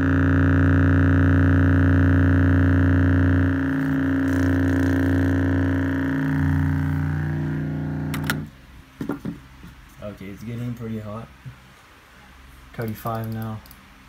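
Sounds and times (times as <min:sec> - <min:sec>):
subwoofer low test tone: 0:00.0 - 0:08.8.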